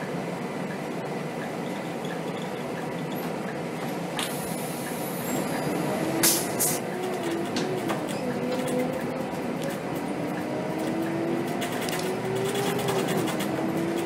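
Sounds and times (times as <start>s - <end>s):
bus diesel engine: 0.0s - 14.0s
air brake hiss: 6.2s - 6.8s.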